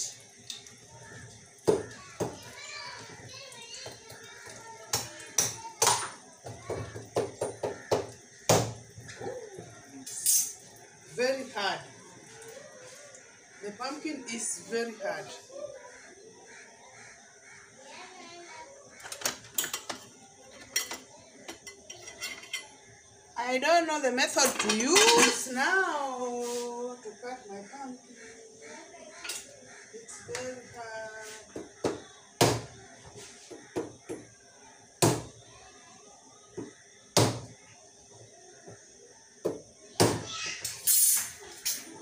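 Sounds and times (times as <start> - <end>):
faint voices: 0.0 - 40.6
metal kitchenware clinking: 10.0 - 10.7, 19.0 - 22.8, 24.2 - 25.8, 40.6 - 42.0.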